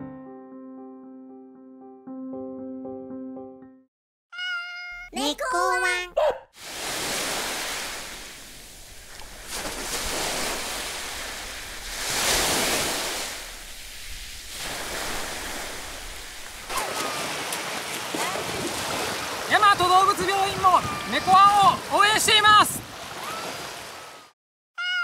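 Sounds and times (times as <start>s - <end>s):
small waves washing onto shore: 6.6s - 24.4s.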